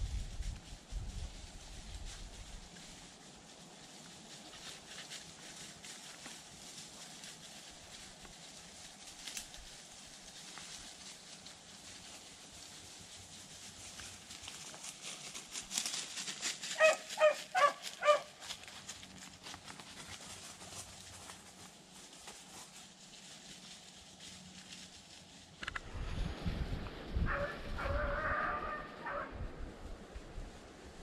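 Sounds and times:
dry leaves rustling: 0.0 - 31.0
dog barking: 16.8 - 18.3, 27.3 - 29.3.

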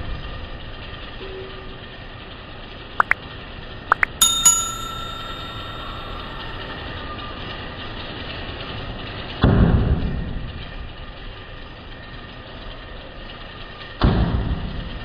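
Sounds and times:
bell ringing: 3.9 - 6.9.

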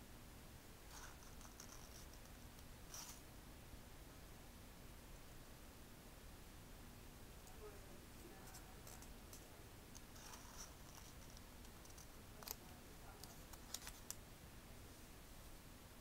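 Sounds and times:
paper rustling: 10.0 - 14.2.

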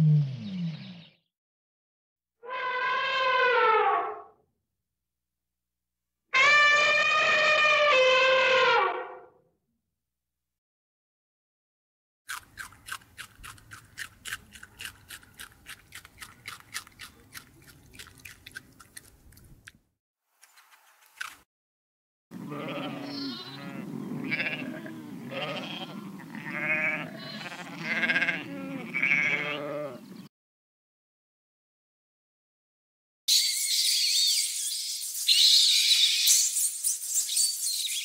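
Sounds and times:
bleats: 6.4 - 9.0, 22.4 - 30.0.

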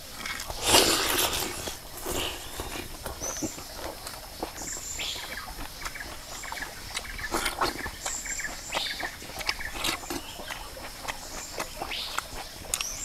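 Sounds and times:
person chewing and lip-smacking: 0.0 - 13.0.

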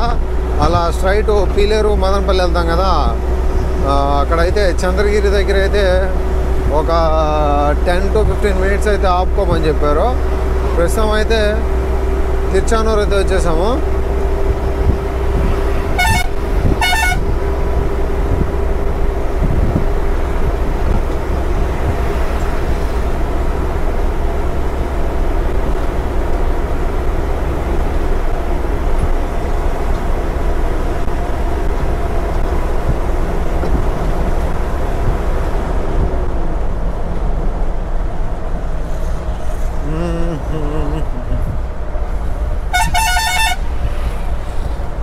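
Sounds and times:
truck engine and road noise: 0.0 - 45.0
low horn honks: 15.7 - 17.6, 42.7 - 43.8
warbling horn: 15.9 - 17.3, 42.7 - 43.7.

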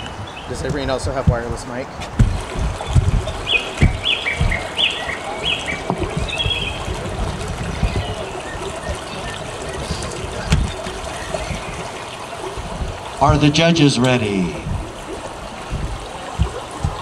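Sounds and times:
microphone bumps: 0.0 - 17.0
crowd murmur: 1.8 - 17.0.

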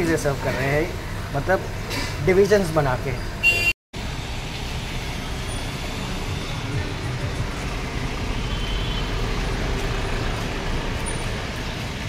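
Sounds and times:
road noise: 0.0 - 12.0
car engines running: 4.0 - 12.0.

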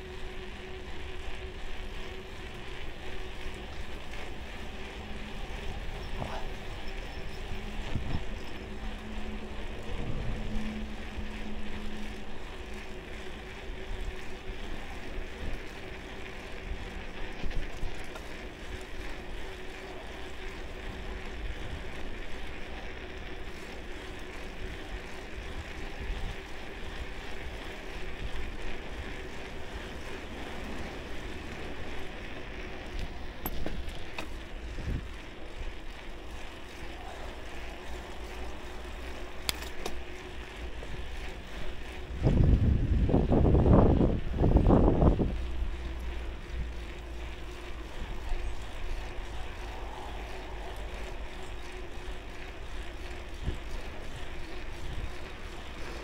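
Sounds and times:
bicycle tyres rumbling: 0.0 - 56.0
faint steady hum: 0.0 - 56.0
wind buffeting microphone: 4.4 - 15.7, 25.4 - 35.8, 40.5 - 56.0.

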